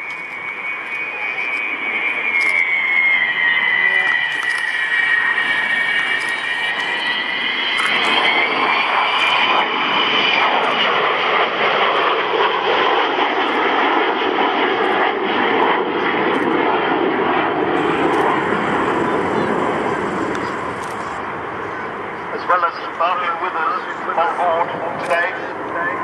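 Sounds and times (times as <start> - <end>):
high jet whine: 0.0 - 26.0
jet aircraft passing overhead: 0.0 - 26.0.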